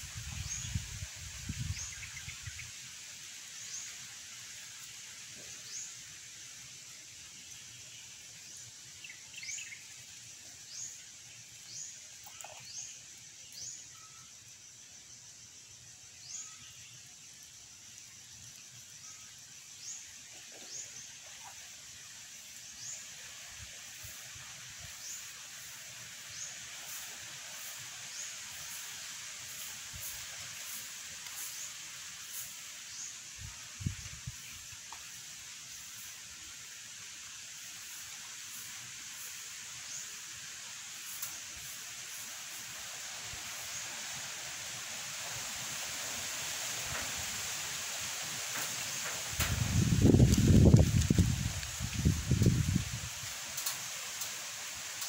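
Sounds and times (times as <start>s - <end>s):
steady outdoor hiss: 0.0s - 55.0s
faint rustling of sticks: 41.0s - 55.0s.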